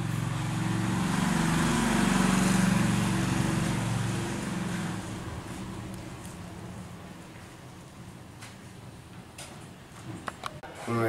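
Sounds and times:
vehicle engine passing by: 0.0 - 7.2.

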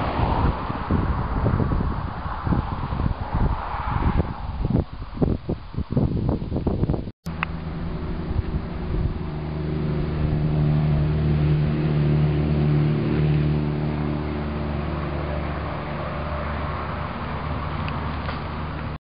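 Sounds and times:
motor engine droning: 7.3 - 19.0.

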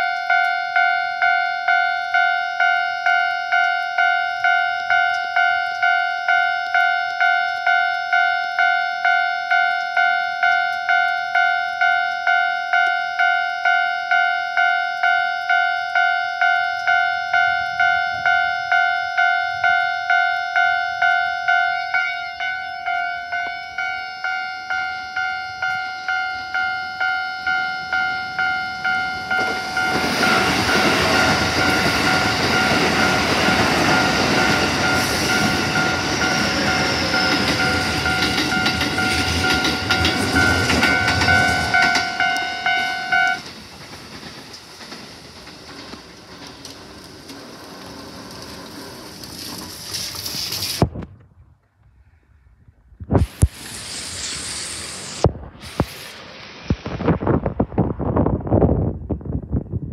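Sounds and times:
level-crossing alarm bell ringing: 0.0 - 44.2
train wheels on rails: 0.0 - 51.0, 53.0 - 59.3.

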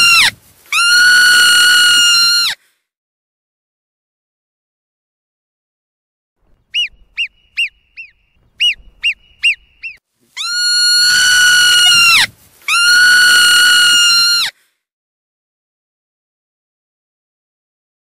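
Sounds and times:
marmot chirps: 6.6 - 13.1
marmot high whistles: 6.7 - 14.5.

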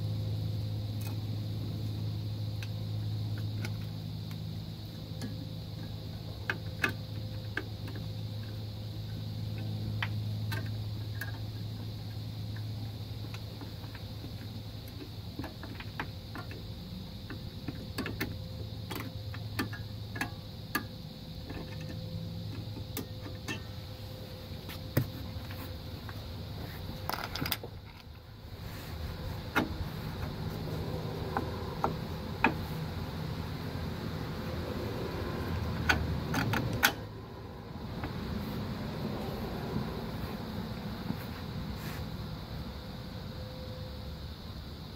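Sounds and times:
steady low hum: 0.0 - 44.9
light metallic clicks and taps: 5.1 - 11.9, 12.5 - 23.7.

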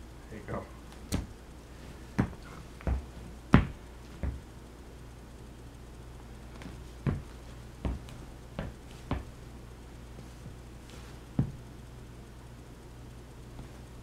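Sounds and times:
low steady hum: 0.0 - 14.0
footsteps on hardwood floor: 1.1 - 4.5, 6.5 - 9.4, 10.2 - 11.6.

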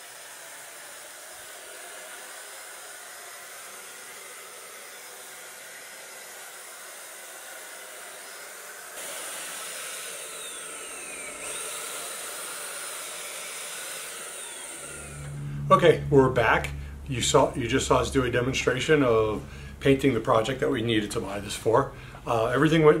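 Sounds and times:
electric paint sprayer running: 0.0 - 16.9.

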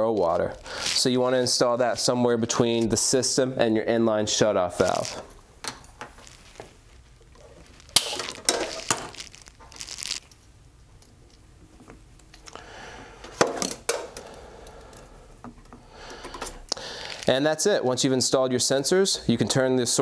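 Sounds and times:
tubing rustling: 4.7 - 10.3.

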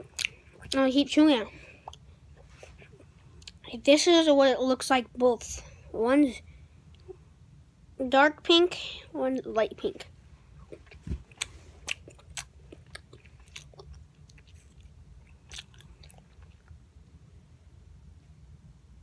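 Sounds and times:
person chewing gum: 0.0 - 0.8, 1.6 - 3.6, 10.5 - 16.8
faint low rumble: 0.0 - 19.0.

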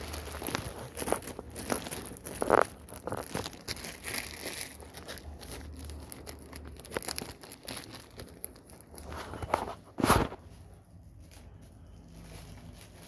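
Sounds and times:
puppy crunching food: 0.0 - 9.0.

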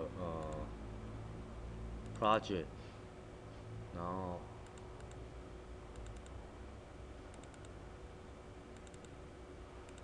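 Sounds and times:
low steady hum: 0.0 - 10.0
computer mouse double-clicks: 7.3 - 7.8, 8.8 - 9.1.

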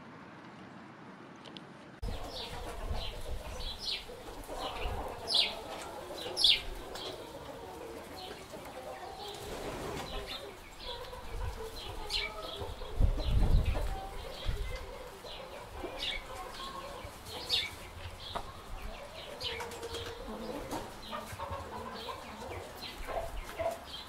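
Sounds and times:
quail chicks peeping: 2.0 - 24.0.

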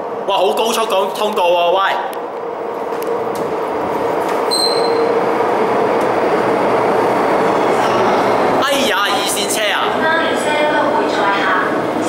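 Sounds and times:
train wheels rumbling on rails: 0.0 - 12.0
wheel squeal: 4.4 - 5.2.

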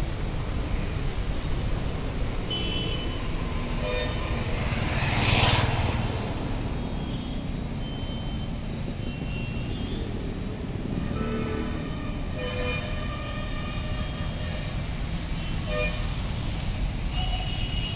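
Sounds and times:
traffic rumble: 0.0 - 17.9.

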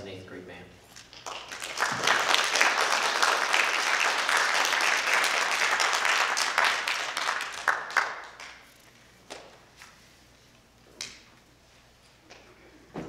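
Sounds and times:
audience applauding: 1.0 - 8.7.

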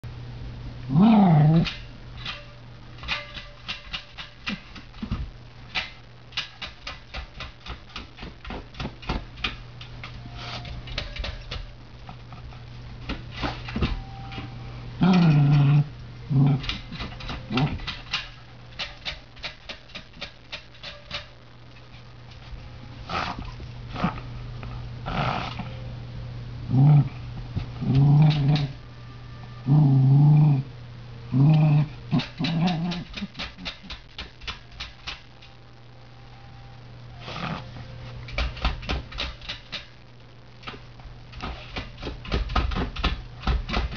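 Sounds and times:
dog growling: 0.9 - 1.8, 15.0 - 17.9, 23.0 - 25.8, 26.7 - 28.8, 29.6 - 33.4, 37.2 - 37.8
dog claws scratching metal vent: 1.5 - 5.1, 16.5 - 22.0.

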